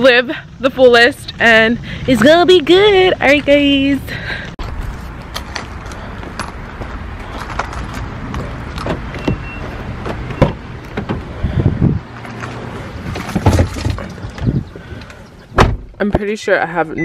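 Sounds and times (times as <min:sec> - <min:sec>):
handheld camera rustle: 0:04.6 - 0:08.9
car door opening with knock: 0:10.0 - 0:11.2, 0:15.6 - 0:16.2.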